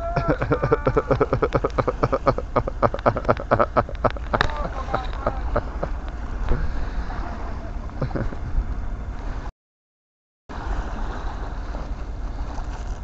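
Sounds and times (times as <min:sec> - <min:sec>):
wind rumbling on microphone: 0:00.0 - 0:09.5
waves washing onto pebbles: 0:00.3 - 0:07.5, 0:10.5 - 0:13.0.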